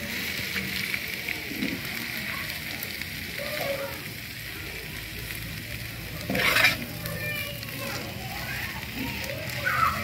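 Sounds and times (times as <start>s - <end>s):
food sizzling in oil: 0.0s - 10.0s
metal spatula scraping: 6.3s - 6.9s.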